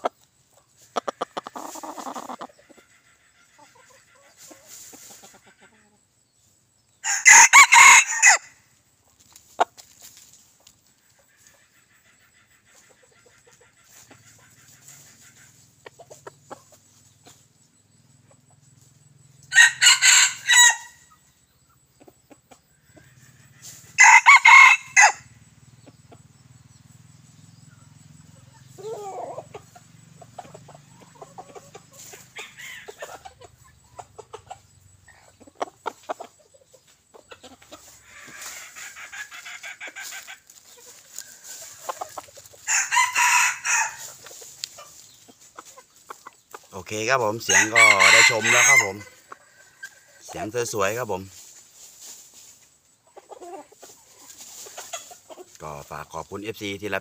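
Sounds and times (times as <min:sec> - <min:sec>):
chicken clucks and calls: 0:00.0 - 0:57.0
rooster crowing: 0:07.0 - 0:08.6, 0:19.5 - 0:21.1, 0:24.0 - 0:25.4, 0:42.6 - 0:44.2, 0:47.2 - 0:50.2.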